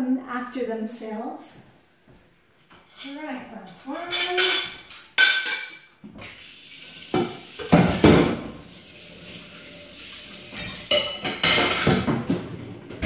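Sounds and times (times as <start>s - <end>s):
crockery clinking and clattering: 2.8s - 5.9s, 10.4s - 13.0s
tap running into steel sink: 7.0s - 8.7s.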